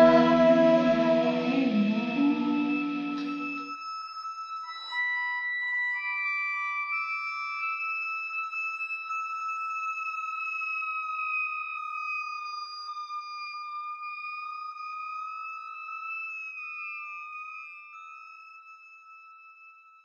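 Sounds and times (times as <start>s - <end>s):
high held electronic tone: 0.0s - 3.8s.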